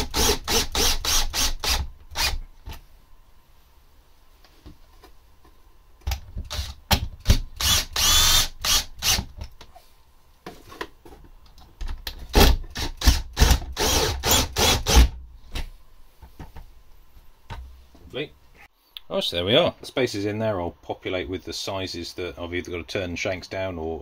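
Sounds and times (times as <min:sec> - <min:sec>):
drill driving screws into wood: 0:00.0 - 0:02.4, 0:06.5 - 0:09.3, 0:12.3 - 0:15.2.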